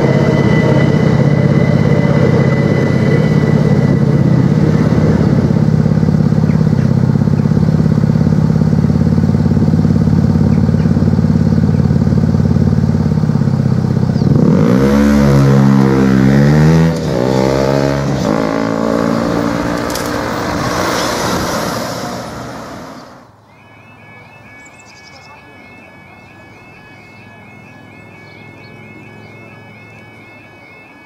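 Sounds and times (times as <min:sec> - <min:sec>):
vehicle engines idling and revving: 0:00.0 - 0:23.5.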